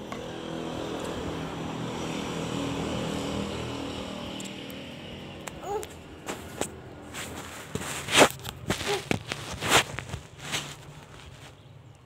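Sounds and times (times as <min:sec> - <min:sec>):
vehicle engine passing: 0:00.0 - 0:07.7.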